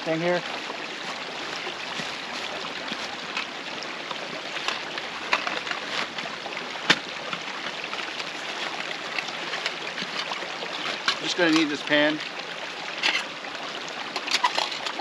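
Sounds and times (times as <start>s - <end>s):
stream babbling: 0.0s - 15.0s
camping gear rustling: 0.5s - 11.6s.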